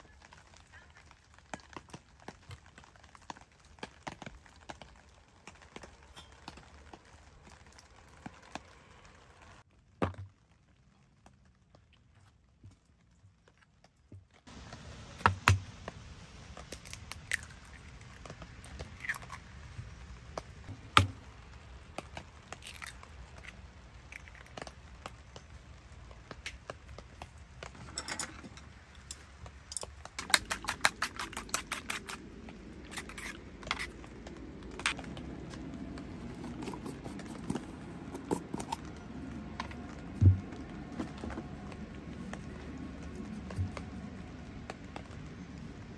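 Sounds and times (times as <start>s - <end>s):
eggs cracking: 16.6s - 19.7s, 20.3s - 25.5s, 28.4s - 41.6s
chopsticks beating eggs in bowl: 30.2s - 32.3s, 36.3s - 38.8s.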